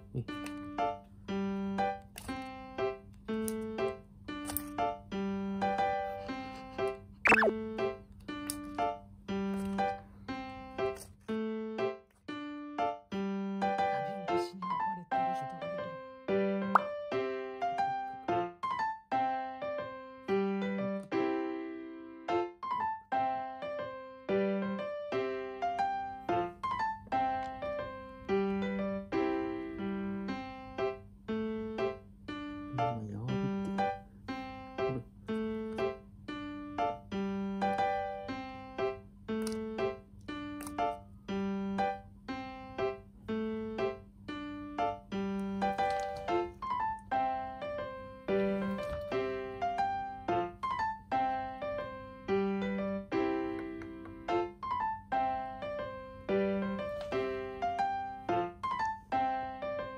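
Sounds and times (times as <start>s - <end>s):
light keyboard tune: 0.0s - 59.9s
bouncy keyboard tune: 7.3s - 8.0s, 43.4s - 59.9s.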